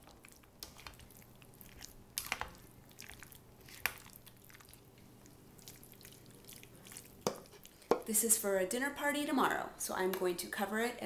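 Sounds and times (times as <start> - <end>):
noodles squishing in sauce: 0.0 - 8.0.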